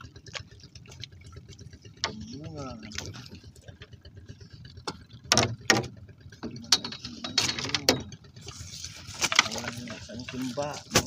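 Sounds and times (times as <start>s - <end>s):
knocks and clicks: 4.8s - 8.2s.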